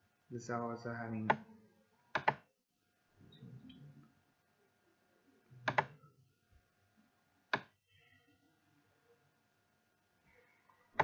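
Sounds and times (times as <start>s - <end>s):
computer mouse clicking: 2.1s - 2.4s, 5.6s - 6.0s, 7.5s - 7.8s.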